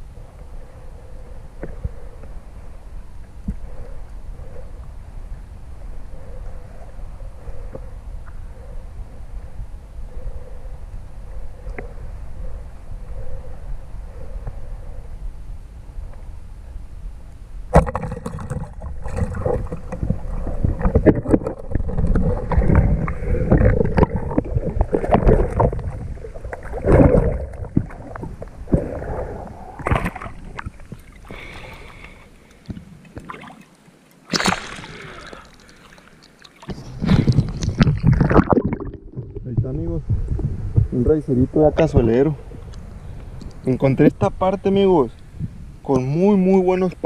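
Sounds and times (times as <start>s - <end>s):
fish thrashing and splashing water: 29.8s - 39.4s.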